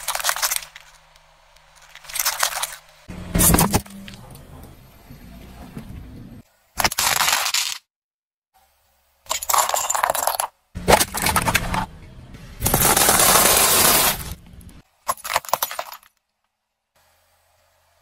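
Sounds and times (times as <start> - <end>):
car tyre crunching objects: 10.8 - 15.6.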